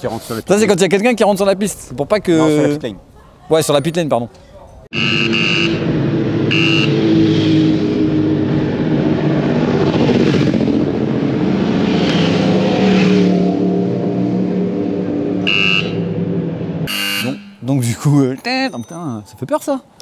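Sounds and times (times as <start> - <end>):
warning beeper: 4.9 - 7.3, 13.5 - 17.9
racing motorcycle engines running: 5.0 - 17.3.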